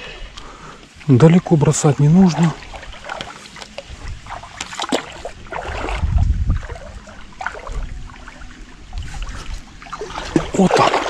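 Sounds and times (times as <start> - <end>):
soft water lapping: 0.0 - 11.0
low rumble on microphone: 3.8 - 10.6.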